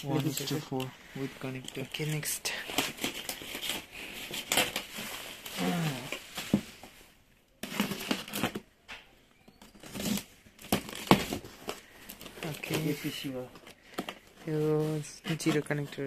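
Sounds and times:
bubble wrap crinkling: 0.0s - 16.0s.

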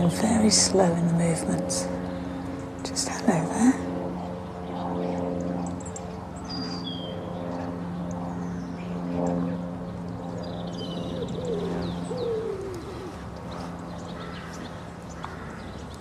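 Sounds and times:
steady low hum: 0.0s - 16.0s
low cooing calls: 10.7s - 15.7s.

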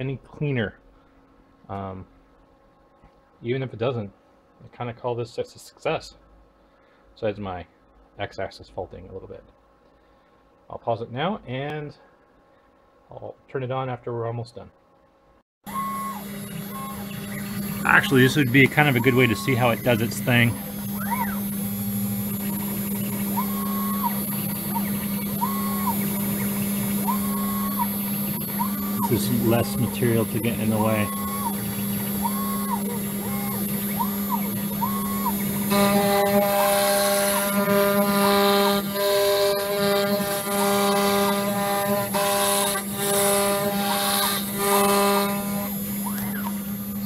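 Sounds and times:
spindle hum: 15.0s - 47.0s
stepper motors whining: 15.7s - 47.0s.

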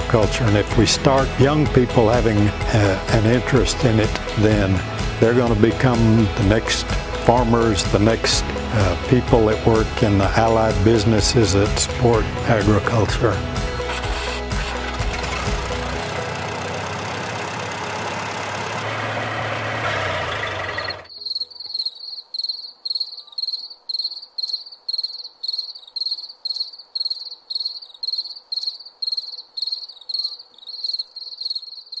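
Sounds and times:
background music: 0.0s - 21.1s
cricket chirping: 21.1s - 32.0s.

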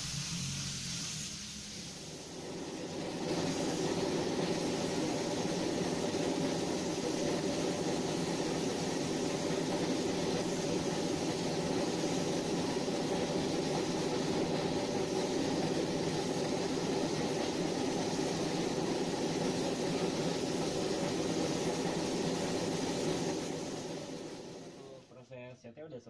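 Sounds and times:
air compressor running: 0.0s - 25.0s
paint spray gun hissing: 0.0s - 25.0s.

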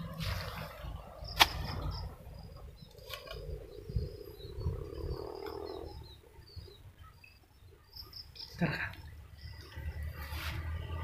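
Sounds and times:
hoe chopping into soil: 1.3s - 1.9s.

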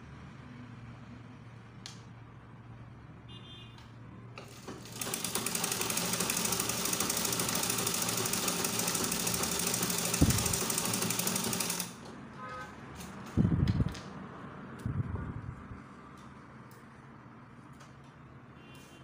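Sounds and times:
sewing machine stitching: 4.4s - 12.1s.

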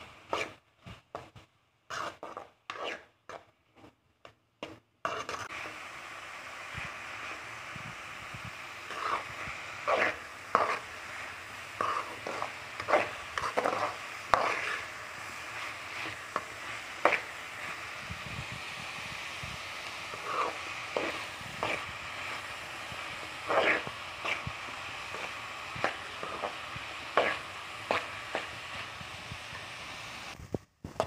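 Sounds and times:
onions sizzling: 0.0s - 3.5s, 4.7s - 31.0s
metal spoon scraping a pan: 0.3s - 0.6s, 1.9s - 4.0s, 4.6s - 5.8s, 8.7s - 18.2s, 19.8s - 29.7s.

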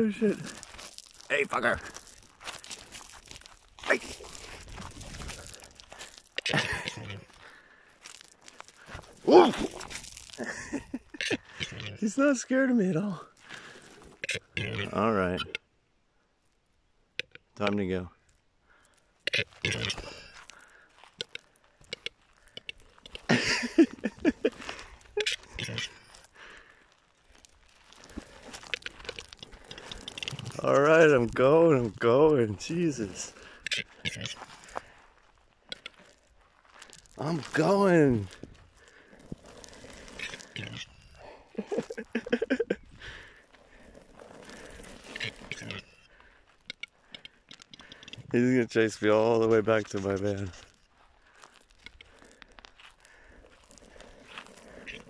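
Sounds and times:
footsteps crunching on gravel: 0.0s - 11.6s, 18.9s - 55.0s.

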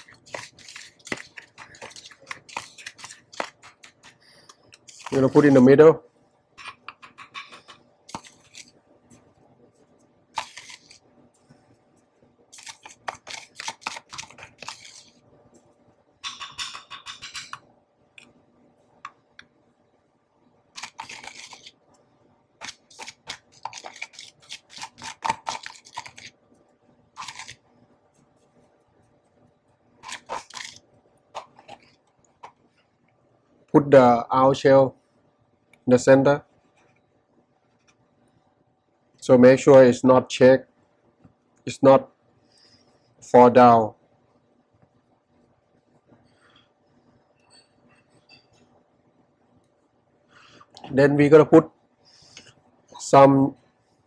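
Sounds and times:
spoon scraping salt in tub: 0.0s - 4.2s, 4.9s - 5.7s, 10.4s - 11.0s, 12.6s - 15.2s, 20.8s - 21.8s, 22.6s - 26.3s, 27.2s - 27.6s, 30.0s - 30.8s
spoon tapping on stone plate: 16.2s - 17.6s.

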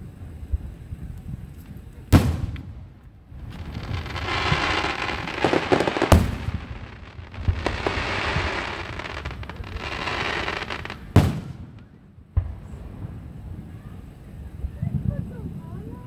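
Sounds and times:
fireworks pops and crackling: 0.5s - 12.8s
fireworks bangs: 1.3s - 15.3s.

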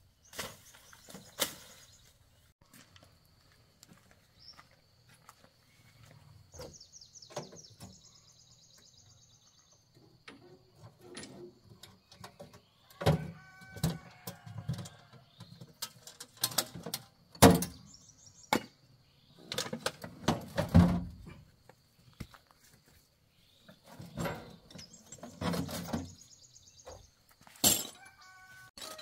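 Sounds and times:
bird-like chirps: 5.7s - 9.9s.

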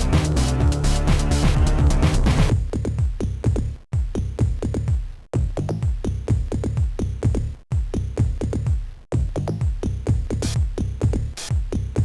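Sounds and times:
drum-machine beat: 0.0s - 12.0s
electronic techno music: 0.0s - 12.0s.

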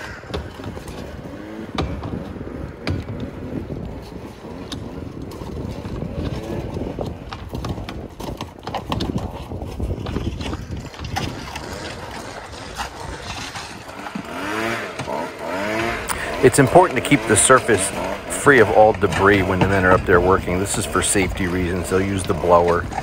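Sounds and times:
tool scraping and knocking on plywood: 0.2s - 16.3s.

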